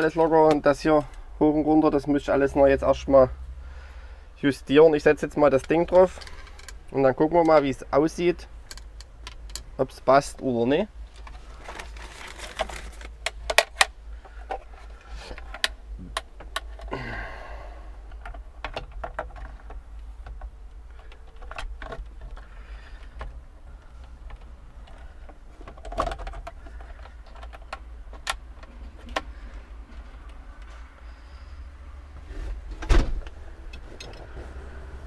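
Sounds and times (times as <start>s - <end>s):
steady low hum: 0.0s - 35.0s
clicks and knocks of parts: 5.5s - 7.7s, 8.6s - 9.8s, 11.1s - 17.0s, 18.0s - 31.0s.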